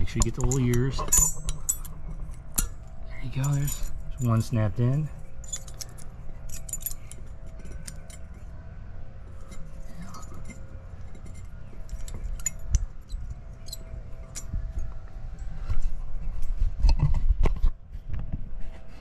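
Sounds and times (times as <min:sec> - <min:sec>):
light metallic clinks and clicks: 0:00.0 - 0:08.5, 0:09.3 - 0:15.8.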